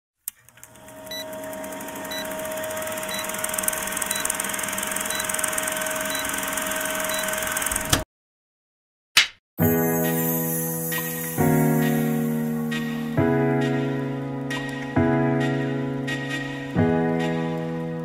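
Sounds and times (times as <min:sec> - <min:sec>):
film projector whirring: 0:00.4 - 0:08.0.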